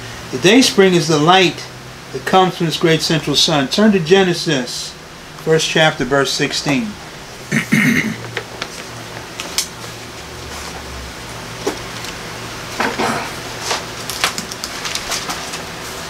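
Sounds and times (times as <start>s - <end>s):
steady low hum: 0.0s - 16.0s
pages turning and rustling: 8.3s - 9.7s, 13.6s - 16.0s.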